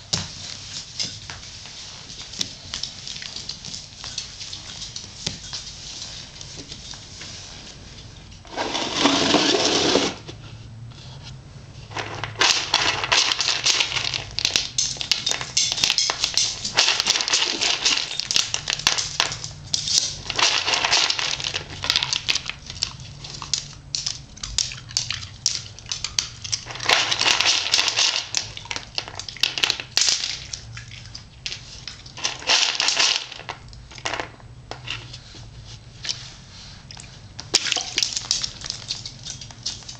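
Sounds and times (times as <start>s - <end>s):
kibble rattling in plastic bowl: 11.9s - 30.5s, 32.2s - 34.3s.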